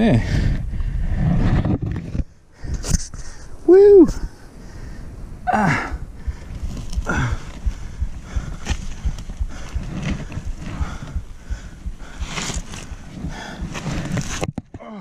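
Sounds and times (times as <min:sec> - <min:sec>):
man gasping breathing: 0:04.2 - 0:09.8, 0:10.7 - 0:13.7.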